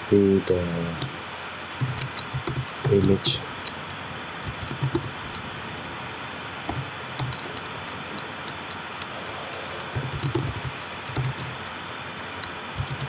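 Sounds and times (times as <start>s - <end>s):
background hiss: 0.0s - 13.0s
typing on a keyboard: 1.8s - 3.2s, 4.4s - 5.0s, 6.7s - 13.0s.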